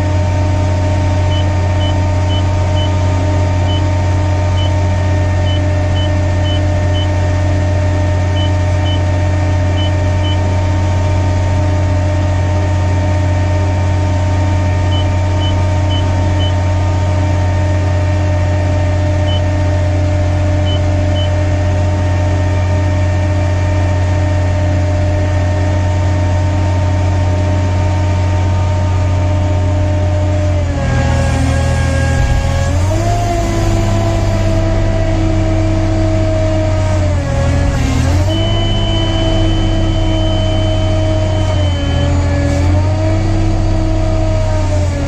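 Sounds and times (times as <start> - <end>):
crane engine idling: 0.0 - 45.0
short high alarm beeps: 38.3 - 42.0.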